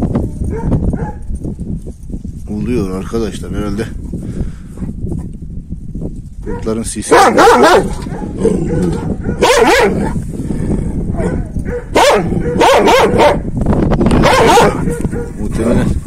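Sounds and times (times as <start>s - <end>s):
dog barking: 0.5s - 1.3s, 6.4s - 10.2s, 11.1s - 13.5s, 14.2s - 15.4s.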